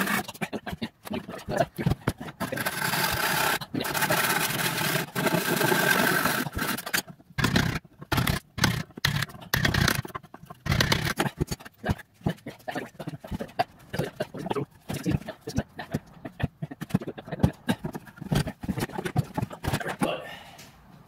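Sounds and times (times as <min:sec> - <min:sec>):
power tool running: 0:02.4 - 0:10.0
cordless drill boring into wood: 0:02.6 - 0:10.0.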